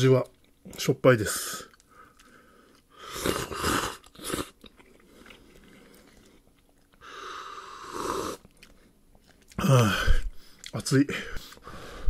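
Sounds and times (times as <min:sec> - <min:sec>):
person slurping noodles: 0:03.0 - 0:06.4, 0:07.0 - 0:08.5.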